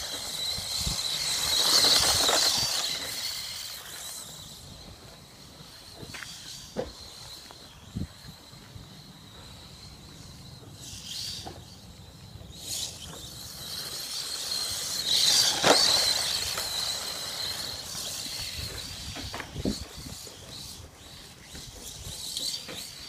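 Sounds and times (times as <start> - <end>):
rc truck motor whine: 0.0 - 23.0.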